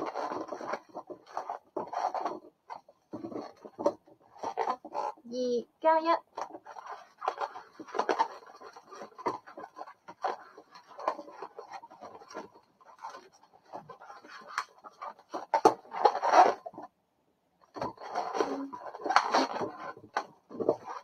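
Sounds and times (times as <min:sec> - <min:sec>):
balloons squeaking and rubbing: 0:00.0 - 0:05.3, 0:05.9 - 0:16.8, 0:17.7 - 0:21.0.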